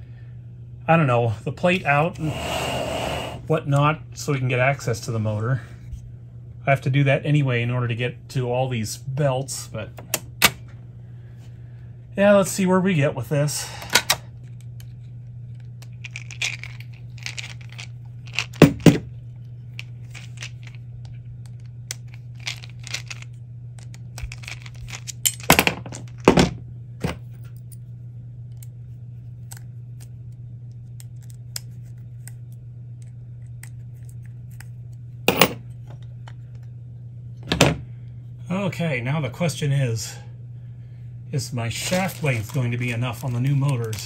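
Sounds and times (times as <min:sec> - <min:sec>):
steady low hum: 0:00.0 - 0:44.0
small metal parts clicking: 0:16.0 - 0:18.7, 0:21.9 - 0:26.1.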